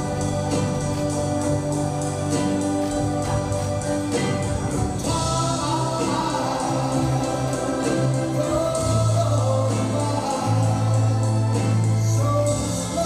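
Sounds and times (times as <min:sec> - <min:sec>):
dance music: 0:00.0 - 0:13.0
low held bass notes: 0:00.0 - 0:13.0
choir singing: 0:05.0 - 0:11.4.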